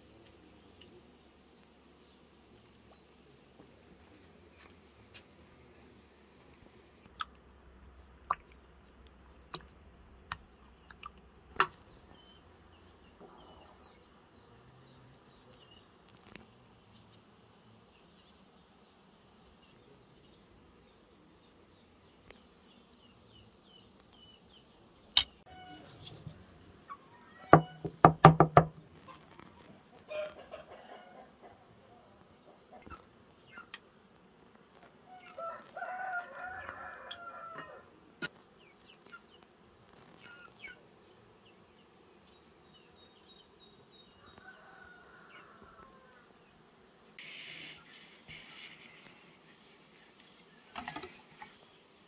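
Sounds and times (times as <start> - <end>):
chickens clucking: 29.8 - 33.8
faint high chirping: 40.1 - 40.8.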